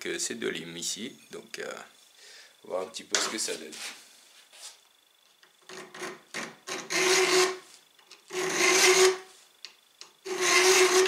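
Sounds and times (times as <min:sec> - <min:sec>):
file strokes on knife blade: 0:06.9 - 0:07.6, 0:08.3 - 0:09.3, 0:10.3 - 0:11.0.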